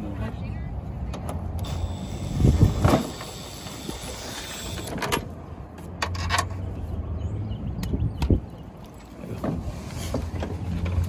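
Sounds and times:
cordless ratchet motor whine: 1.6s - 5.0s.

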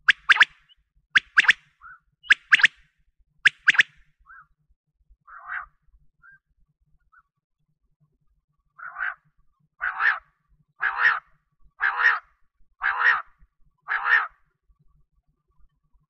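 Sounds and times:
quail calling: 0.0s - 2.8s, 3.5s - 4.4s, 5.3s - 5.7s, 8.8s - 9.2s, 9.8s - 10.2s, 10.8s - 11.2s, 11.8s - 13.3s, 13.9s - 14.3s.

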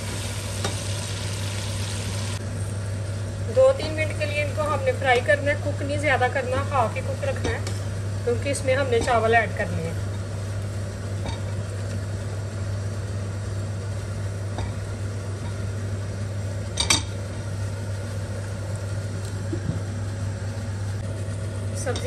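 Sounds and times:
food stir-frying: 0.0s - 3.2s
steady low hum: 0.0s - 22.0s.

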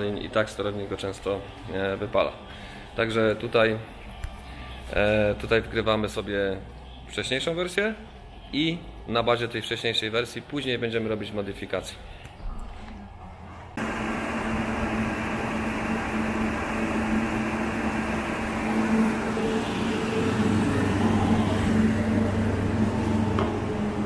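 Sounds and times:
constant low hum: 12.9s - 24.0s
cooling blower rushing: 13.8s - 24.0s.

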